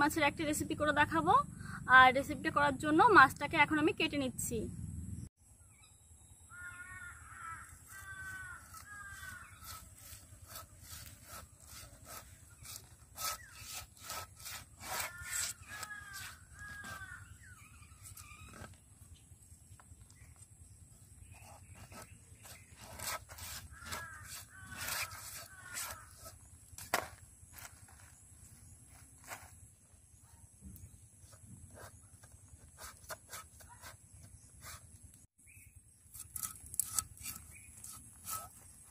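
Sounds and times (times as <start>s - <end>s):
crows cawing: 6.5s - 9.9s, 14.9s - 17.4s, 23.7s - 26.4s.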